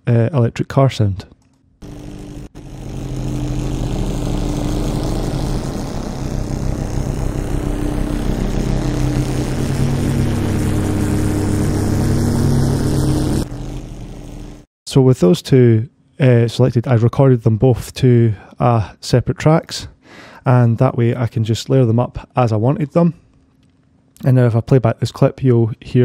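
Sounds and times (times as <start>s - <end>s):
synthesized car engine hum: 1.8s - 14.7s
thin high whine: 1.8s - 14.7s.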